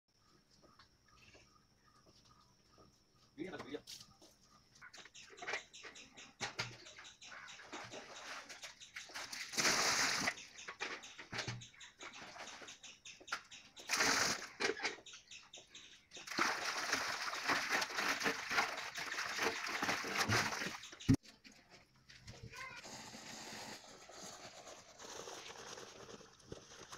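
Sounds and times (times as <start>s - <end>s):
water splashing into steel basin: 16.2s - 21.1s.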